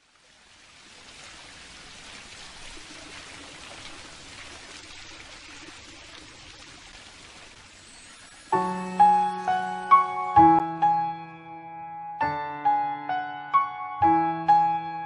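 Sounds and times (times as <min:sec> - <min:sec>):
rushing water hiss: 0:00.0 - 0:10.6.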